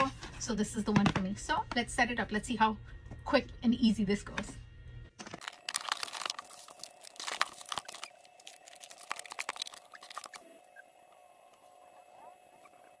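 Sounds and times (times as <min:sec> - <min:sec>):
packaging crinkling and tearing: 0:05.4 - 0:10.6.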